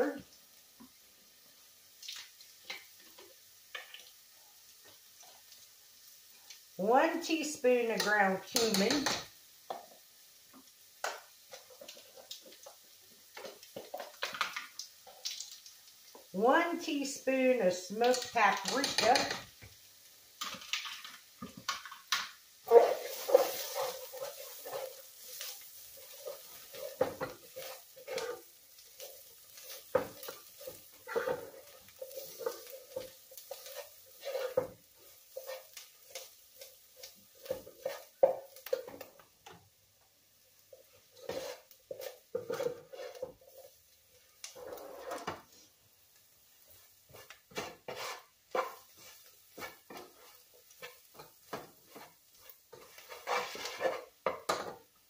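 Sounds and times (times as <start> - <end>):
spices sizzling: 0.0 - 55.0
spoon scraping a pot: 18.1 - 19.5, 22.7 - 28.5, 29.1 - 36.3, 37.0 - 39.1, 40.8 - 43.8, 44.5 - 45.4, 47.1 - 54.8.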